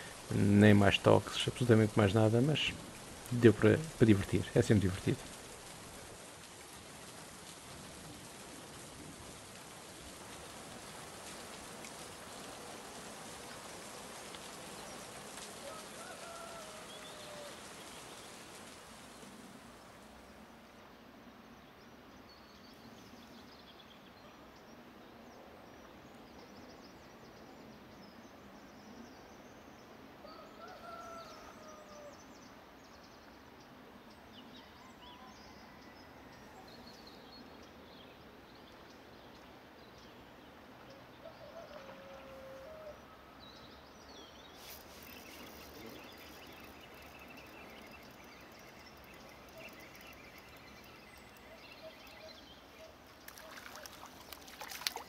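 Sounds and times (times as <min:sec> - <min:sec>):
steady low hiss: 0:00.0 - 0:30.3, 0:31.3 - 0:35.0, 0:35.9 - 0:55.0
distant bird calls: 0:10.9 - 0:20.5, 0:25.3 - 0:55.0.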